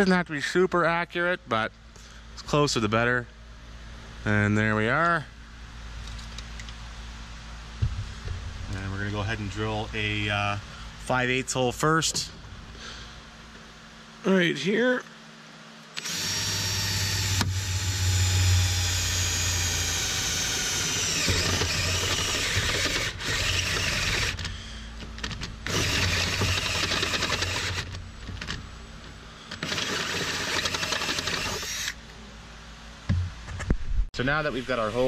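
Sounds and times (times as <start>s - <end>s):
air drill whining through metal: 16.0s - 24.8s, 25.6s - 28.0s, 29.5s - 32.0s.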